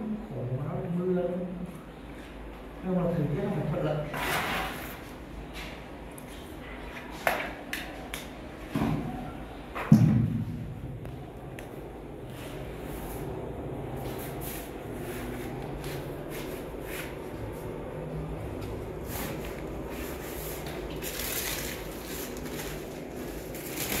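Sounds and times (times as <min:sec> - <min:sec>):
low steady hum: 0:07.7 - 0:24.0
plastic membrane rustling: 0:19.3 - 0:24.0.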